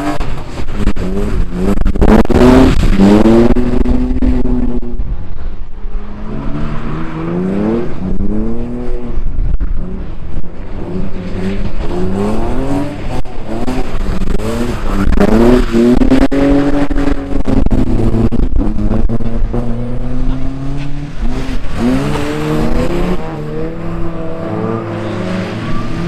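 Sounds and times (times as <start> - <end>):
racing engines revving: 0.0 - 5.1, 5.9 - 26.0.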